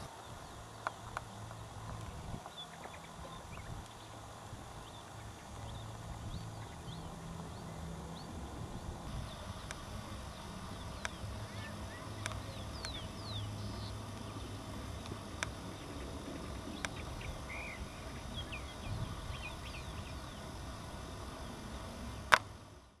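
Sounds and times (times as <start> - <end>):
steady low rumble: 0.0 - 23.0
sharp clicks: 9.6 - 15.7, 22.2 - 22.5.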